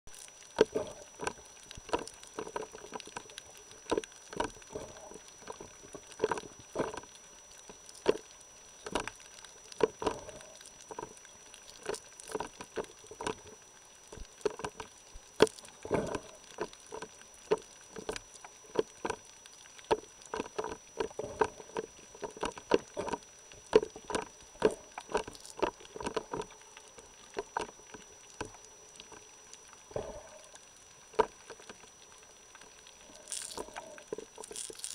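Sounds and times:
underwater clicks and knocks: 0.1 - 29.2, 29.9 - 31.9
faint high whine: 0.1 - 34.9.

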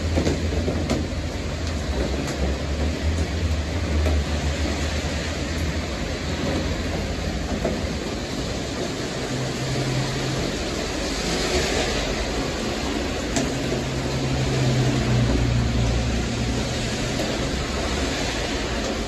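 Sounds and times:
tyres hissing on wet road: 0.0 - 19.0.

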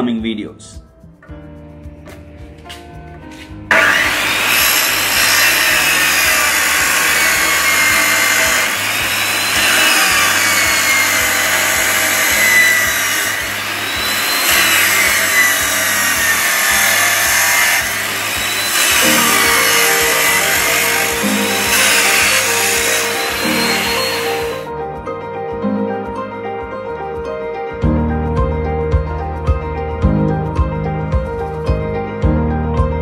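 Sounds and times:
chop saw cutting steel: 3.7 - 24.7.

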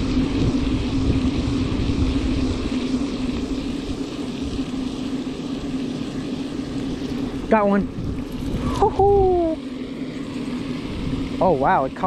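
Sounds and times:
wind on microphone: 0.0 - 5.0, 7.3 - 9.6, 10.7 - 12.0
fishing reel whirring: 0.0 - 12.0.

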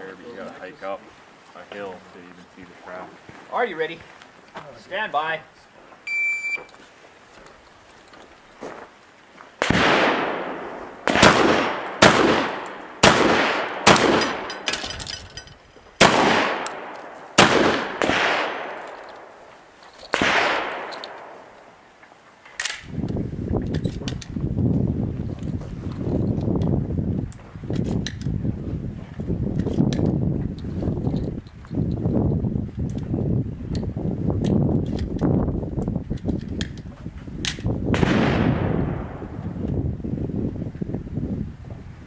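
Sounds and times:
handling rustle: 0.1 - 9.6, 18.7 - 33.2
shot timer beep: 6.1 - 6.7
gunshots with long echo: 9.6 - 14.7, 16.0 - 19.5, 20.1 - 21.6, 37.9 - 39.6.

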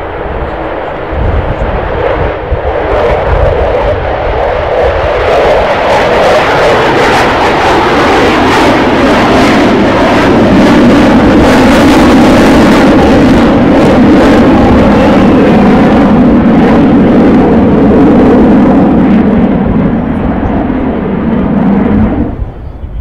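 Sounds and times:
loud jet engine noise: 0.0 - 23.0.

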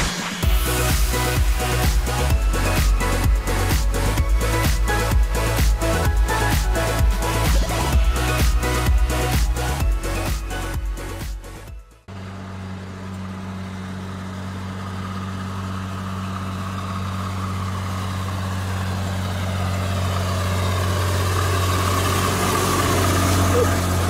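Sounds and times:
music: 0.0 - 12.1
heavy truck engine running: 0.0 - 24.0.

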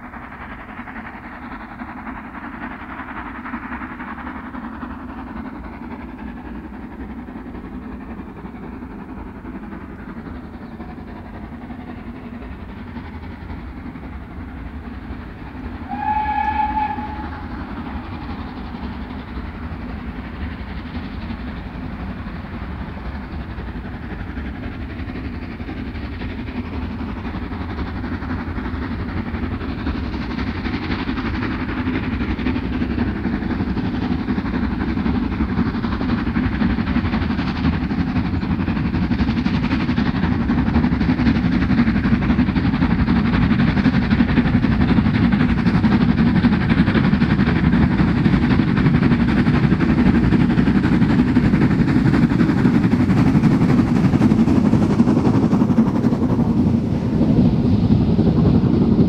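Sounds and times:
steam train rumble: 0.0 - 59.0
steam locomotive whistle: 15.8 - 17.7.

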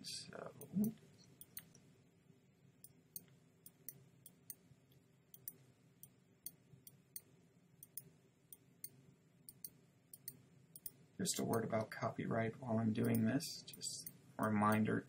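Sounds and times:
low steady hum: 0.0 - 15.0
computer mouse clicks: 0.6 - 1.8, 5.3 - 11.7, 13.0 - 13.3.

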